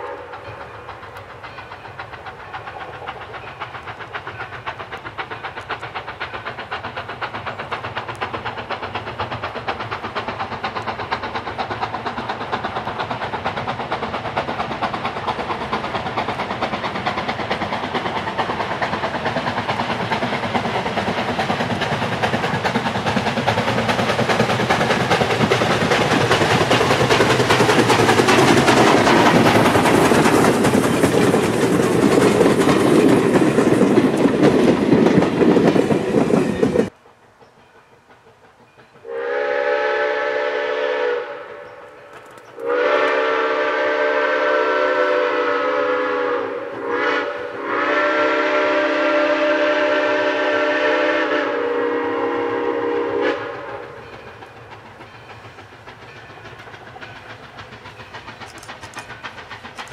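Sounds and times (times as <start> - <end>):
steam locomotive exhaust: 0.0 - 59.9
wheels clattering over rails: 0.3 - 39.1, 53.8 - 59.9
steam whistle chord: 39.0 - 41.9, 42.6 - 53.9.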